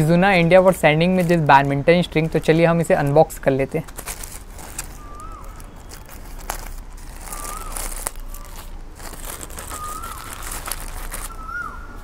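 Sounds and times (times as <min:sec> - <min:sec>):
plastic mailer crinkling: 0:00.5 - 0:02.2, 0:02.8 - 0:11.6
whistled call: 0:04.9 - 0:06.1, 0:09.7 - 0:10.5, 0:11.3 - 0:12.0.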